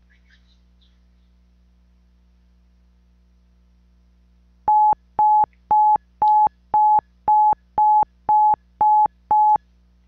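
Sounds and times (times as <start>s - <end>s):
electronic timer beeping: 4.7s - 9.6s.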